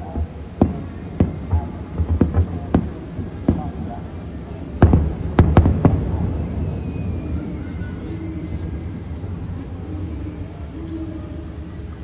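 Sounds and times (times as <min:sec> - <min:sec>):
distant firework bangs: 0:00.0 - 0:09.5.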